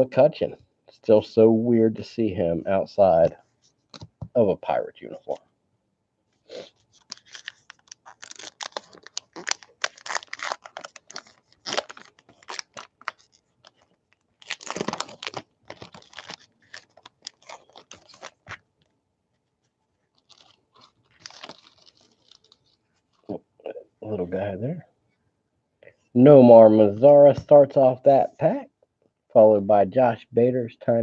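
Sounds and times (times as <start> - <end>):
paper wrapper tearing and crinkling: 6.6 - 18.6, 20.1 - 23.3.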